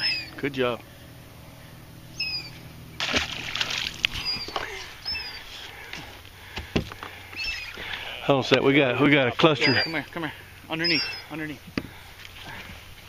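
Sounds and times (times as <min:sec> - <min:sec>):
bird chirping: 0:00.0 - 0:00.4, 0:02.1 - 0:02.7, 0:04.1 - 0:05.5, 0:07.3 - 0:07.8, 0:09.5 - 0:10.0, 0:10.7 - 0:11.4
fish splashing in water: 0:03.0 - 0:05.2.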